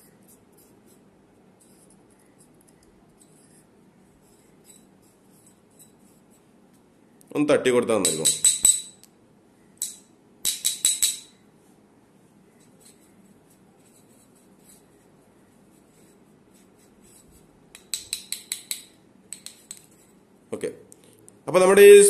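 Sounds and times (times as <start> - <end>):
faint brushing: 0.0 - 6.6, 11.6 - 17.6.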